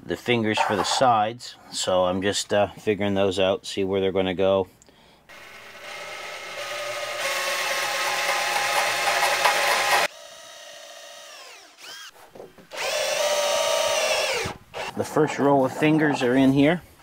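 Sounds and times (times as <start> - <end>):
drill boring through plastic: 5.3 - 15.0.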